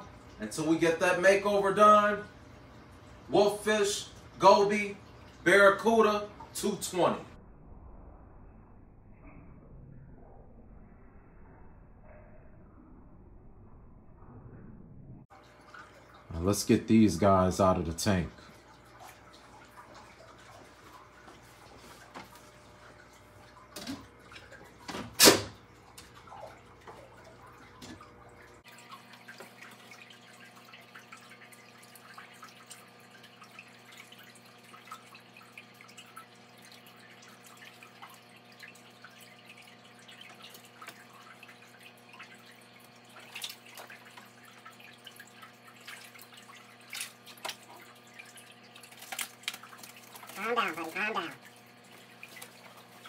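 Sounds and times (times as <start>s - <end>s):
aquarium water trickling: 0.0s - 7.4s, 15.3s - 53.0s
net splashing in water: 28.8s - 53.0s.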